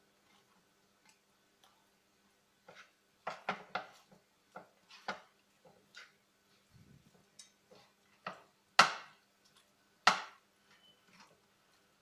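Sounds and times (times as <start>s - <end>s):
food mixed by hand in frying pan: 0.0s - 12.0s.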